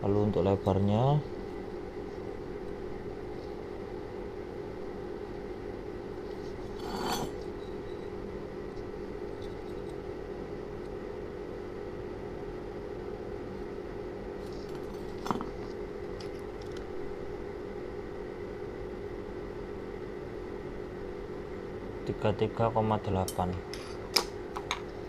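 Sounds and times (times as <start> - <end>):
steady background hum: 0.0 - 25.0
metal scrape: 6.6 - 7.5.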